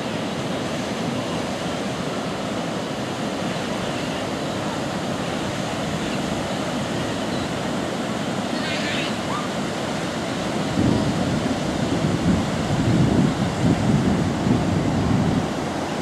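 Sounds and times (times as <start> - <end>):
surf breaking on beach: 0.0 - 16.0.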